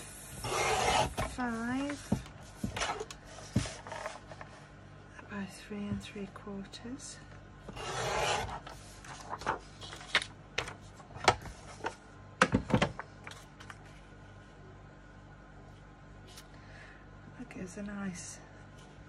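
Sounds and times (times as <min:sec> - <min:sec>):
paper being cut: 0:00.4 - 0:01.3, 0:07.7 - 0:08.8.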